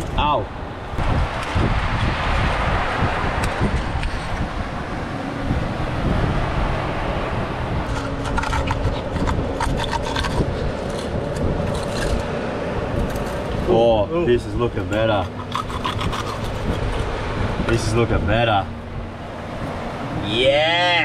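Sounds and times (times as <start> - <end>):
steady low rumble: 0.0 - 20.3
knife scraping urchin shell: 7.9 - 12.3, 14.9 - 17.1.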